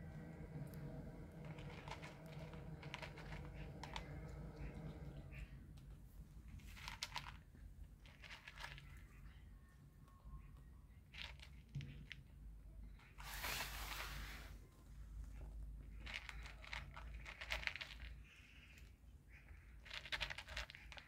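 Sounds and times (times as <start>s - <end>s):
cat crunching dry kibble: 0.7s - 5.1s, 6.5s - 9.2s, 11.1s - 12.3s, 15.8s - 18.4s, 19.8s - 21.0s.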